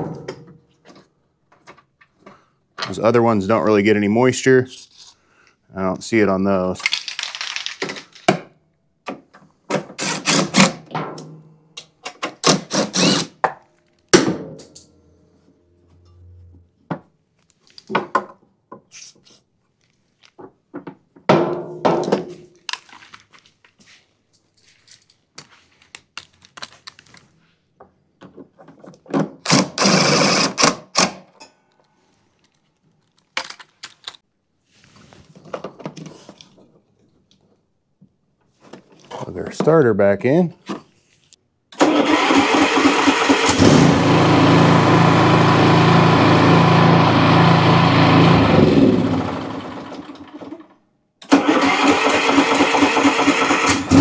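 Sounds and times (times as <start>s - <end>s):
hand tools and bolts clattering: 14.5s - 15.1s, 24.3s - 25.7s.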